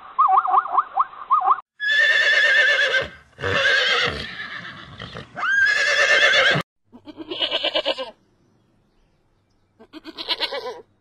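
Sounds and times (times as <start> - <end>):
horse whinnying: 1.8 - 6.6.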